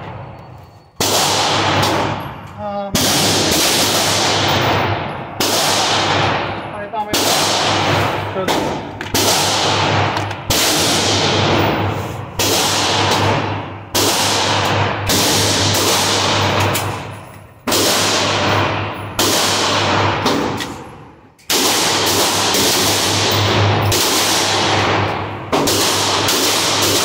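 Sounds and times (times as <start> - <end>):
pistol shots echoing: 1.0 - 27.0.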